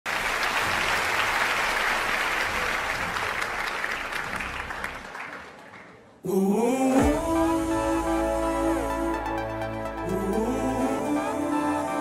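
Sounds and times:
large audience applauding: 0.1s - 6.2s.

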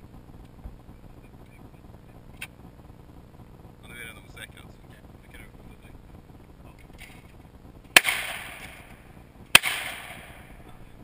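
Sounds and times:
shotgun shots: 7.9s - 10.6s.

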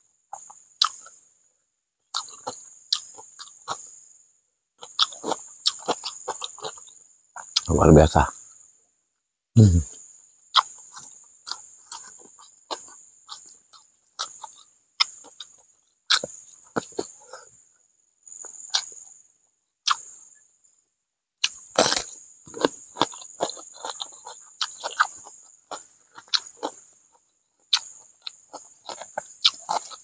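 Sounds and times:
wet chewing and lip smacks: 0.4s - 1.2s, 2.2s - 3.8s, 10.6s - 17.1s, 18.4s - 19.0s, 21.4s - 26.8s, 27.7s - 30.0s
crisp cucumber bites: 21.4s - 25.4s.

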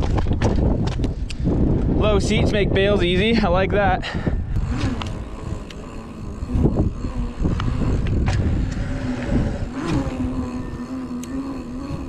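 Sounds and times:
bike clicks and knocks: 0.0s - 1.9s, 7.6s - 10.0s
bike tyre roar on asphalt: 0.0s - 12.0s
steady low hum: 0.0s - 12.0s
wind on microphone: 0.0s - 12.0s.

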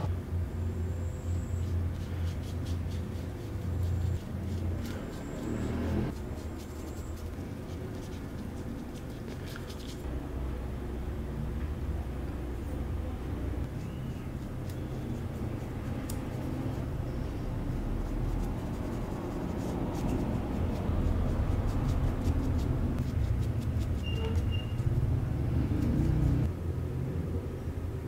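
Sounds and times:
steady low rumble: 10.0s - 28.0s.

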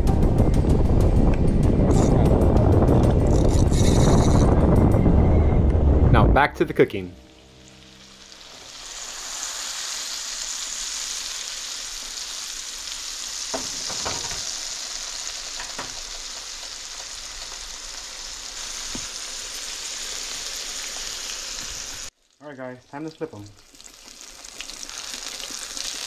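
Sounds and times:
fish sizzling in a frying pan: 7.4s - 26.0s.

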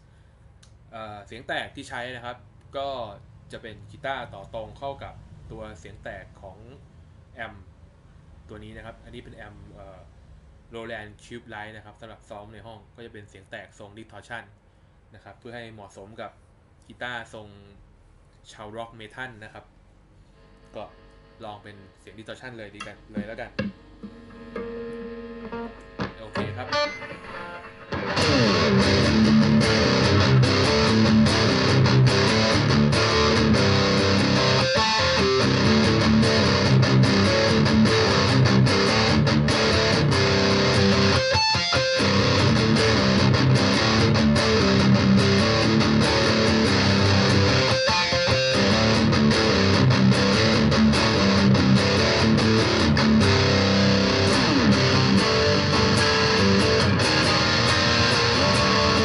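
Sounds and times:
distorted electric guitar riff: 22.8s - 59.0s.

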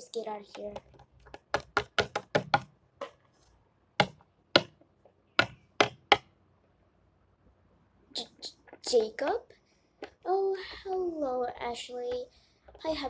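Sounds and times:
plastic toy tapping on wooden table: 0.5s - 3.2s, 4.0s - 4.8s, 5.4s - 6.3s.

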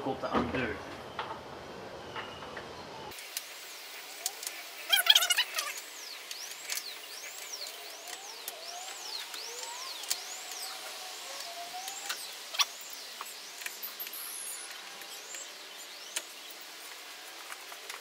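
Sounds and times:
screws squeaking: 4.9s - 5.8s.

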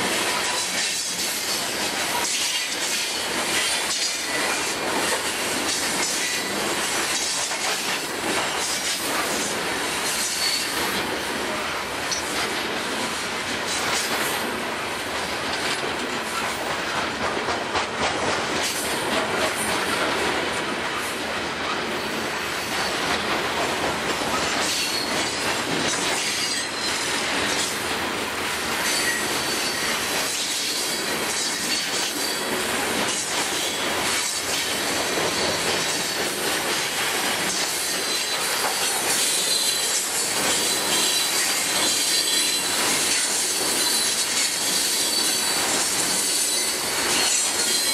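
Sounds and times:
freight train wheels rumbling: 0.0s - 47.9s
high wheel squeal: 28.8s - 30.0s, 37.9s - 42.7s.

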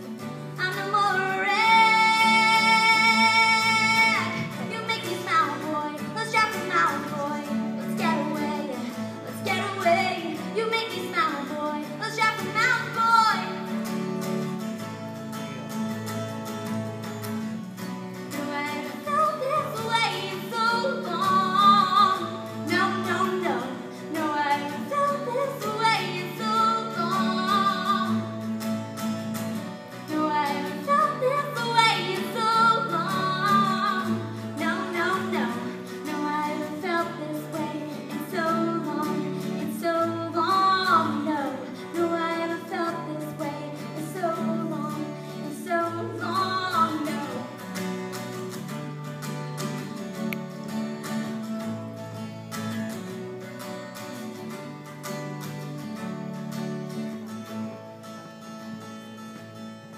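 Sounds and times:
strummed guitar chords: 0.0s - 59.9s
woman singing: 0.1s - 14.0s, 18.1s - 28.8s, 29.6s - 48.8s.

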